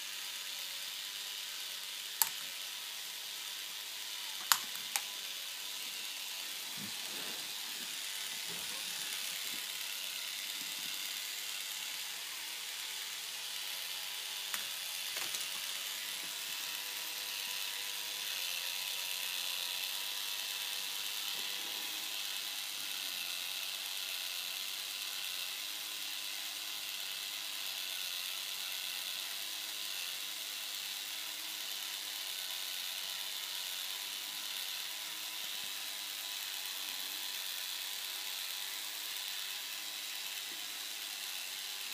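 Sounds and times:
plastic gears whirring and ratcheting: 0:00.0 - 0:41.9
sharp plastic clicks: 0:04.4 - 0:05.1.

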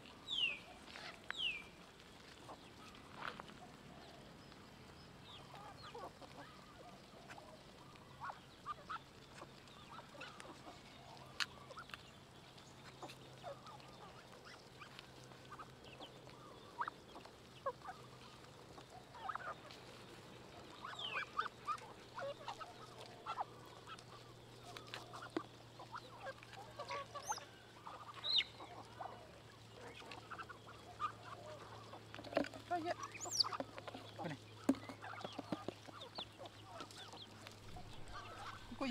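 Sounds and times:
waterfowl calling: 0:12.8 - 0:19.9, 0:20.5 - 0:38.9.

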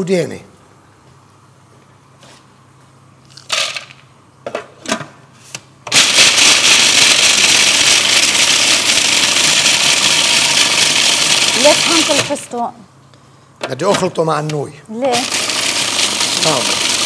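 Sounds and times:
chopper motor grinding: 0:06.0 - 0:12.4, 0:15.1 - 0:17.0.

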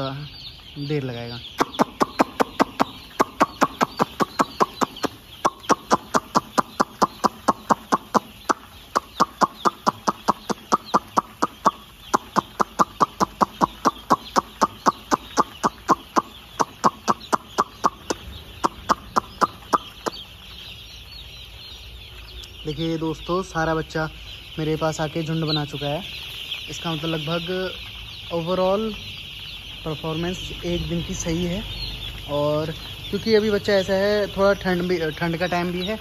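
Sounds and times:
chicks peeping: 0:00.0 - 0:36.0
person making sharp mouth calls: 0:01.6 - 0:20.2.

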